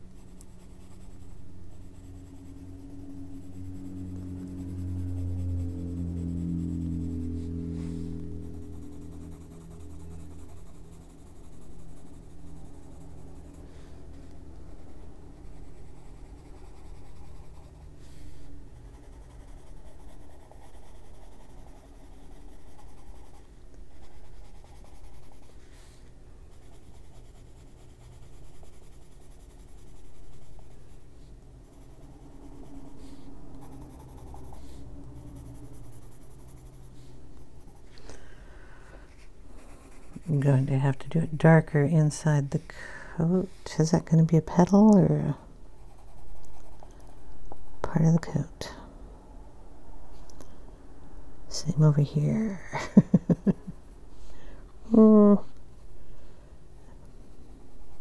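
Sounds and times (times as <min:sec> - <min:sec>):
pencil scratching on paper: 0:00.0 - 0:37.9, 0:39.1 - 0:41.6, 0:43.6 - 0:47.9.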